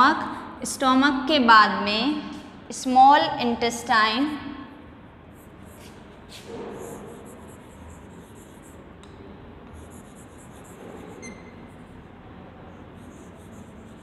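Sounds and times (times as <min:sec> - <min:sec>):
chalk scratching on blackboard: 0:05.3 - 0:09.0, 0:09.7 - 0:14.0.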